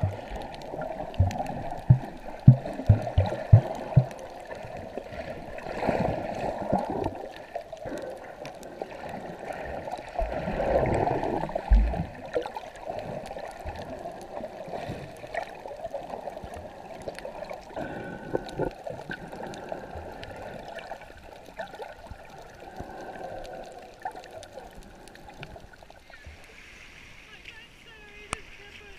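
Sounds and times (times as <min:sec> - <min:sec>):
underwater water gurgling: 0:00.0 - 0:28.9
low thumps: 0:01.2 - 0:04.2.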